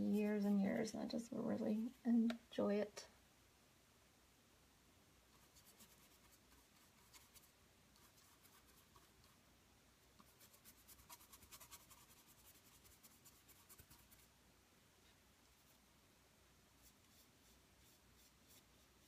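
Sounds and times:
stiff brush scrubbing on canvas: 10.2s - 14.3s, 16.8s - 19.0s.

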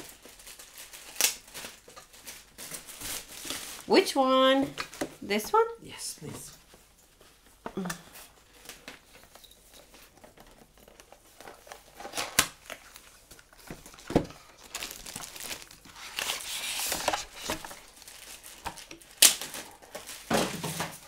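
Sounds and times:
packaging crinkling and tearing: 0.0s - 4.0s, 8.4s - 21.0s.

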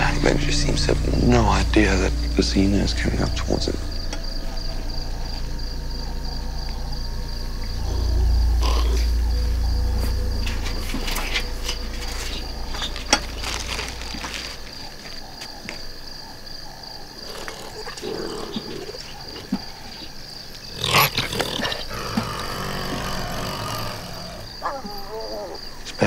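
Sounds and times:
low growling: 0.0s - 19.9s, 20.6s - 25.7s
crickets chirring: 0.0s - 26.0s
animal rummaging through rubbish: 7.8s - 15.7s
animal snarl: 17.2s - 19.7s, 20.7s - 25.5s.

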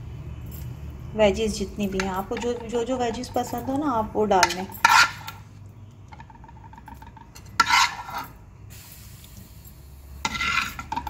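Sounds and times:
spoon scraping a cooking pan: 1.9s - 5.4s, 7.4s - 8.4s, 10.2s - 11.0s.

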